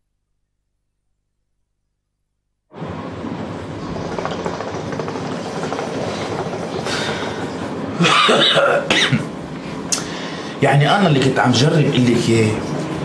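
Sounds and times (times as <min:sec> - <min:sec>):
hookah water gurgling: 0:03.8 - 0:08.9.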